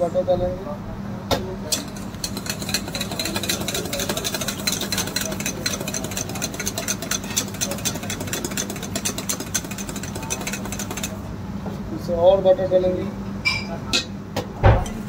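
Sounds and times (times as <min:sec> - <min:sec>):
whisk beating in metal bowl: 0:01.7 - 0:11.3, 0:14.8 - 0:15.0.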